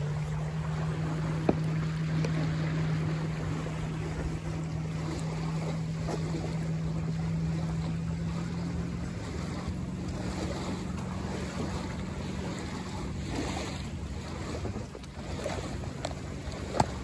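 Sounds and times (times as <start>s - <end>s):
steady low hum: 0.0s - 17.0s
water splashing against hull: 0.0s - 17.0s.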